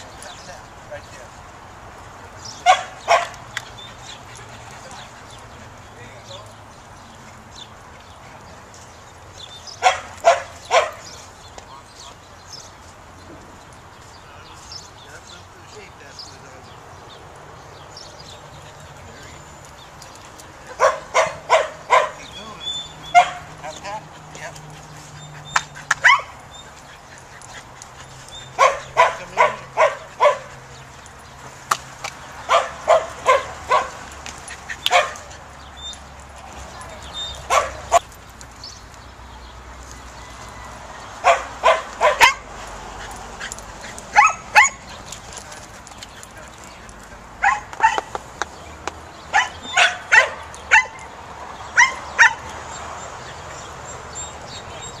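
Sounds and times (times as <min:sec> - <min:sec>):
outdoor background noise: 0:00.0 - 0:55.0
dog barking: 0:02.6 - 0:03.4, 0:09.8 - 0:11.2, 0:20.7 - 0:22.4, 0:23.1 - 0:23.9, 0:26.0 - 0:26.4, 0:28.6 - 0:30.7, 0:32.4 - 0:34.0, 0:34.9 - 0:35.3, 0:37.4 - 0:38.0, 0:41.2 - 0:42.5, 0:44.1 - 0:44.9, 0:47.4 - 0:48.2, 0:49.3 - 0:51.1, 0:51.7 - 0:52.5.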